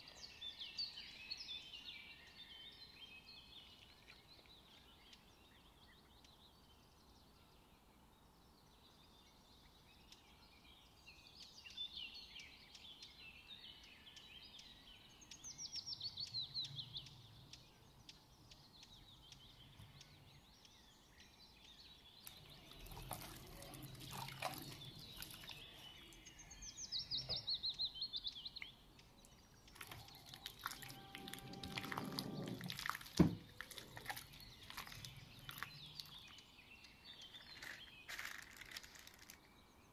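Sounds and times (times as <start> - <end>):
birds chirping: 0.0 - 39.9
wet squelching of hands in batter: 22.3 - 26.0, 29.6 - 36.4.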